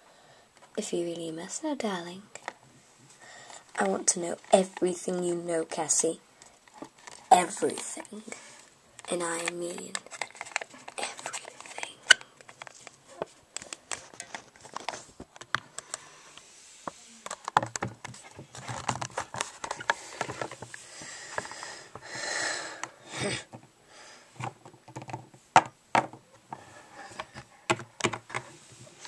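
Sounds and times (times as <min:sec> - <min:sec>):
plastic toys clicking and tapping: 0:27.1 - 0:28.5.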